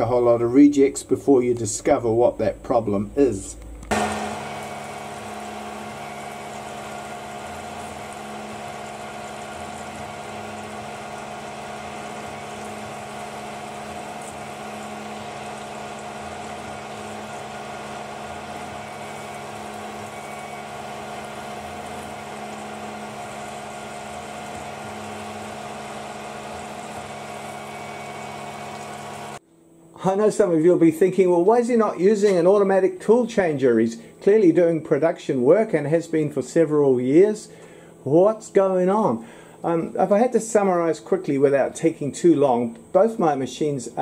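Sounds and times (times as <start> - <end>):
milling machine whine: 1.5 - 29.4
coolant spray hissing: 3.9 - 29.4.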